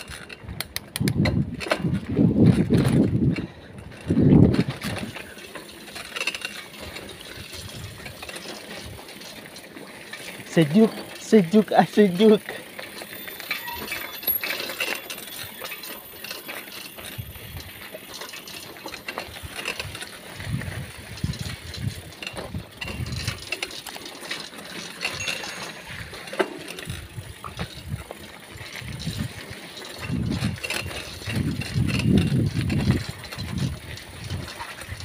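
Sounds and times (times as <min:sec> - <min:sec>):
wind on microphone: 0:00.0 - 0:05.2, 0:19.4 - 0:23.4, 0:26.9 - 0:35.0
bicycle rattling and ticking: 0:00.0 - 0:35.0.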